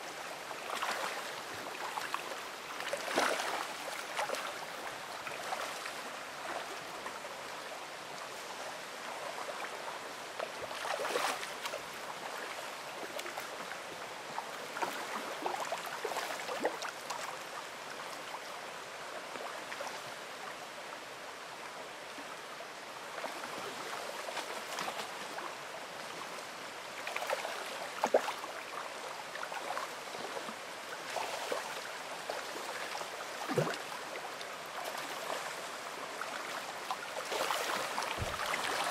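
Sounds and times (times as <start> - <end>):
water splashes: 0.0 - 7.1, 10.4 - 13.8, 14.4 - 17.5, 27.0 - 38.9
creek water running over stones: 0.0 - 38.9.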